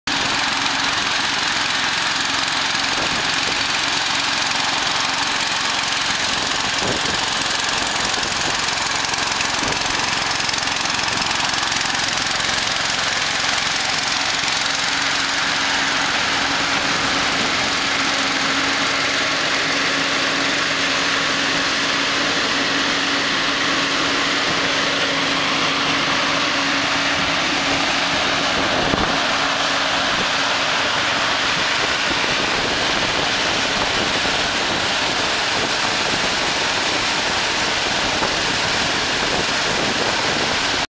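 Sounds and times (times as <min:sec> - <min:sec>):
engine humming: 0:00.1 - 0:40.9
fan rush of air: 0:00.1 - 0:40.9.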